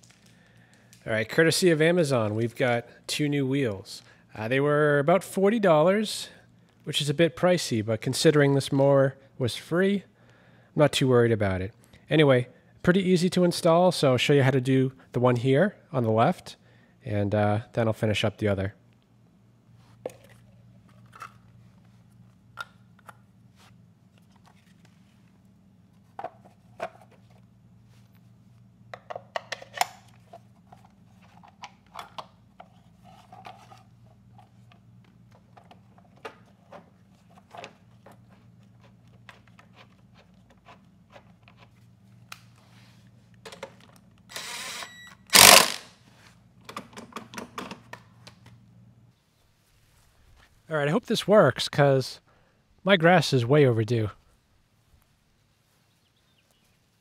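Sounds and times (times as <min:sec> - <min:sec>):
cordless drill running: 0:44.3 - 0:45.9.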